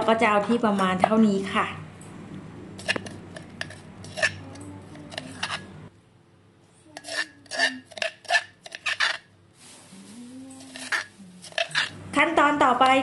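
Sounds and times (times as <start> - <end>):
pestle knocking and scraping in mortar: 2.8 - 5.7, 7.0 - 9.3, 10.6 - 12.0.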